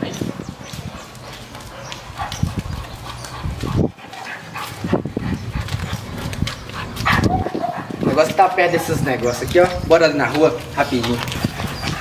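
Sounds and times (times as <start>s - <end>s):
dog footsteps on concrete: 0.0s - 12.0s
dog breathing: 0.6s - 8.1s, 11.2s - 12.0s.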